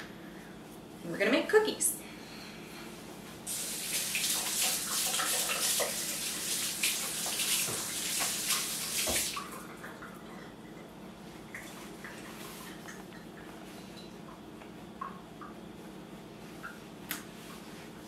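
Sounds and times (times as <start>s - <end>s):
tap running with hand washing: 3.5s - 10.5s.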